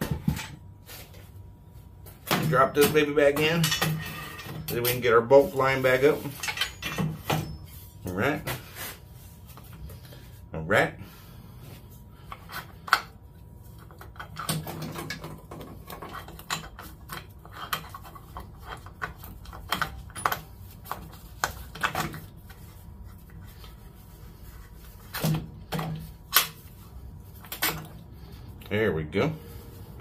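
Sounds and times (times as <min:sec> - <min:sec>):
metal chain clinking and rattling: 0:06.2 - 0:07.6.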